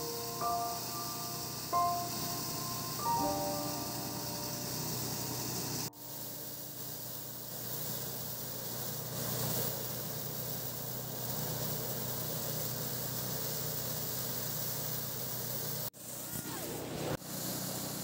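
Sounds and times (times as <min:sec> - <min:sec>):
threshing machine engine hum: 0:00.1 - 0:15.8.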